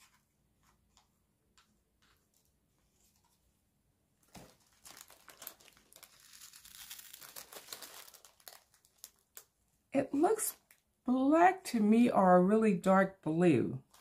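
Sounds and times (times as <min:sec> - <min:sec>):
plastic bag crinkling: 0:04.2 - 0:09.6.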